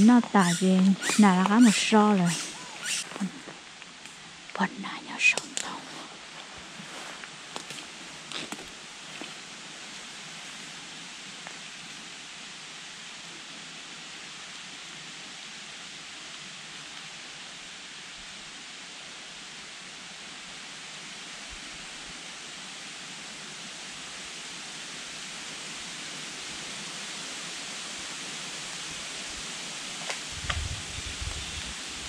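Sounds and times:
steady outdoor hiss: 0.0 - 32.0.

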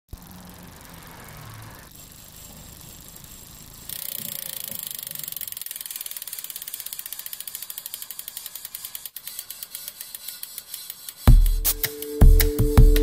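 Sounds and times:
fast ratchet clicking: 0.1 - 12.1.

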